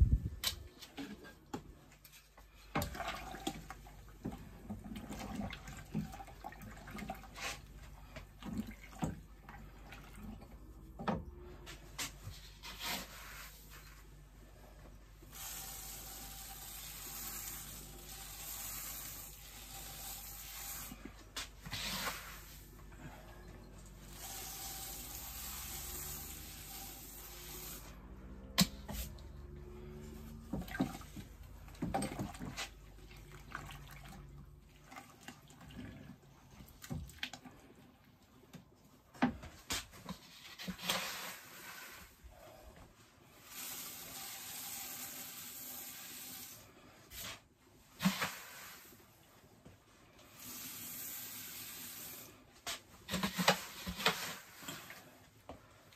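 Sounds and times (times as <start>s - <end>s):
grain pouring into water: 15.3s - 21.0s, 24.0s - 27.9s
plastic scoop scraping and knocking: 52.6s - 55.0s.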